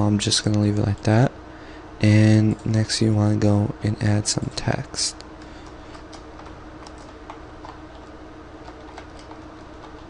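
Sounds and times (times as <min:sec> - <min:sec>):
steady low hum: 0:00.0 - 0:10.0
keyboard typing: 0:05.4 - 0:10.0.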